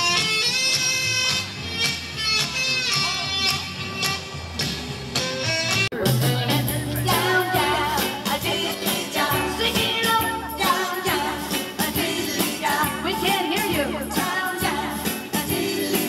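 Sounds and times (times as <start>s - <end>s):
pop song with singing: 6.0s - 16.0s.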